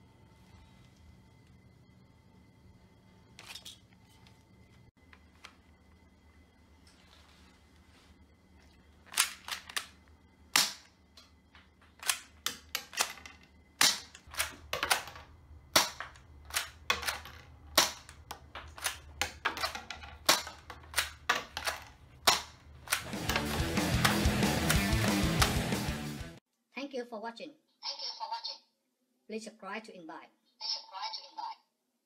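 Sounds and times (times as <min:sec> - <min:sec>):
toy pistol plastic clacks: 0:09.1 - 0:09.9, 0:15.8 - 0:24.8
toy shells bouncing on wooden floor: 0:10.6 - 0:25.6.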